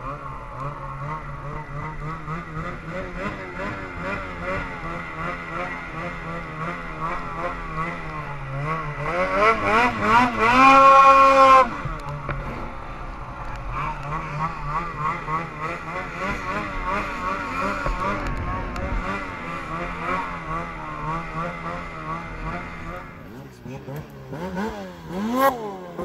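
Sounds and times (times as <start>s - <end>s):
snowmobile engine revving: 0.0s - 26.0s.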